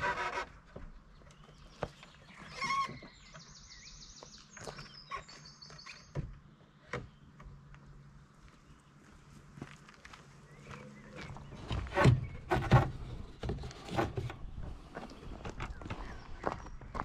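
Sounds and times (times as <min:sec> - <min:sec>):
high trilling bird song: 0:01.1 - 0:07.3
straps and roof rack rattling: 0:11.8 - 0:14.9.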